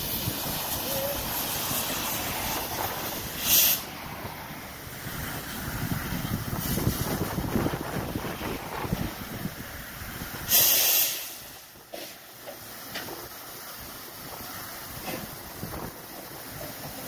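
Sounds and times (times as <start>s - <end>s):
steam hiss burst: 0.0s - 5.8s, 6.4s - 8.2s, 10.2s - 17.0s
wind rumble on microphone: 0.0s - 10.5s, 15.3s - 16.5s
soft steam puffs: 0.0s - 17.0s
steam locomotive running: 0.0s - 17.0s.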